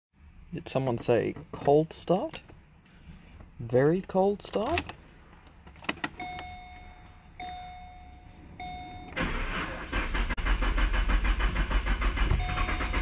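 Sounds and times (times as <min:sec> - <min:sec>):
dash warning chime: 0:06.2 - 0:09.4, 0:12.3 - 0:13.0
starter cranking engine: 0:09.2 - 0:13.0.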